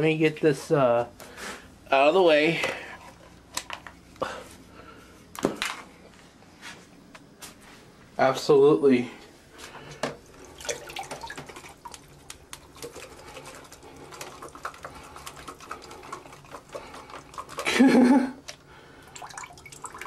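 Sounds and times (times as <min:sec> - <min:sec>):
water sloshing in sink: 0:10.0 - 0:20.0.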